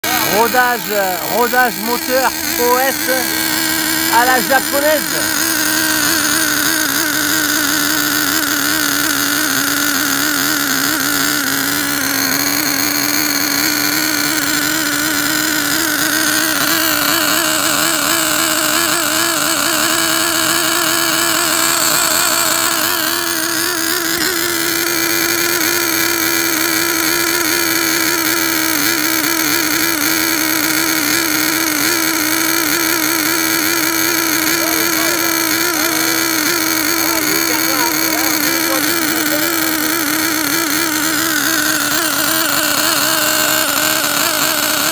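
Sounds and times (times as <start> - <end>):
nitro engine running: 0.0 - 44.9.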